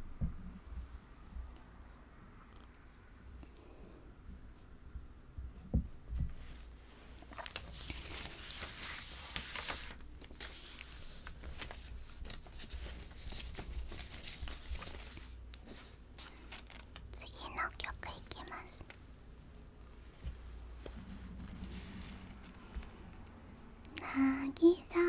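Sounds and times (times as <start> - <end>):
rustling and crinkling handling: 6.2 - 19.0, 19.9 - 23.4.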